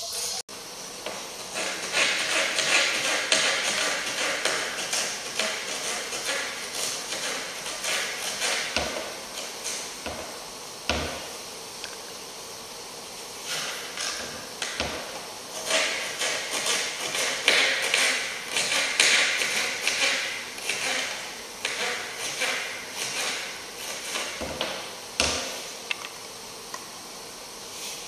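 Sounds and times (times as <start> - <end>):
knife cutting vegetables on a board: 1.1 - 9.8, 13.5 - 25.5.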